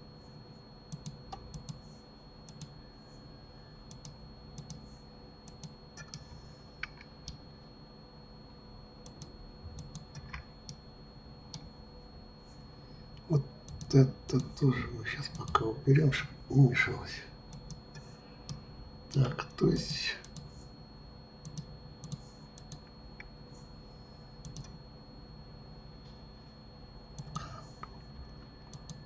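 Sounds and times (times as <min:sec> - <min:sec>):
keyboard and mouse clicking: 0:00.9 - 0:01.8, 0:02.5 - 0:02.7, 0:03.9 - 0:04.8, 0:05.5 - 0:07.4, 0:09.0 - 0:10.8, 0:13.6 - 0:14.5, 0:17.5 - 0:17.9, 0:21.4 - 0:23.3, 0:24.4 - 0:24.8, 0:27.2 - 0:27.5, 0:28.7 - 0:29.0.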